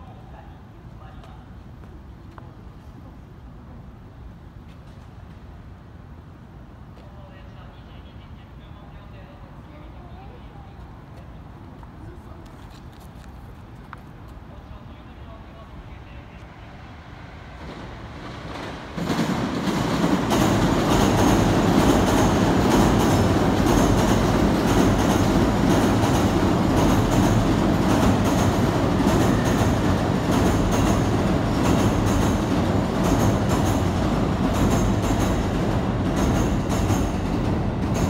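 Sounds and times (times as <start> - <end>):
train rumbling past: 0.0 - 38.0
wheels clacking over rail joints: 17.6 - 38.0.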